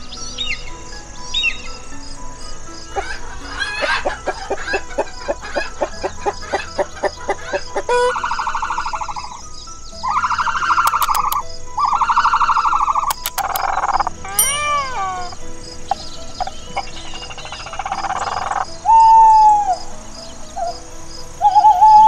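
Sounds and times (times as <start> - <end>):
ostrich buzzing calls: 0.0 - 22.0
hens clucking: 3.0 - 9.0.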